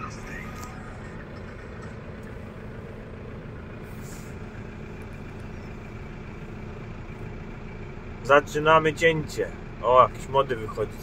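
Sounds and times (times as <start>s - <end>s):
tractor diesel engine drone: 0.0s - 11.0s.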